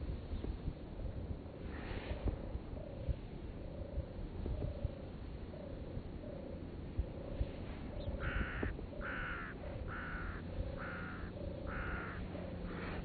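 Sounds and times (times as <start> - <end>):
steady low rumble: 0.0 - 13.0
animal calling: 8.2 - 13.0.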